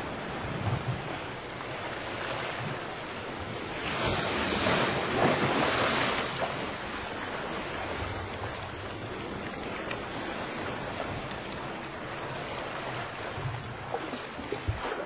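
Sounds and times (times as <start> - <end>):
sea waves washing: 0.0 - 15.0.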